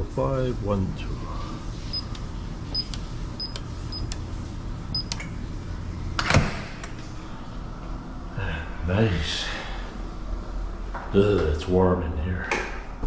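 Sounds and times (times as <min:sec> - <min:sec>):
keypad beeps: 0:01.9 - 0:04.2, 0:04.9 - 0:05.3.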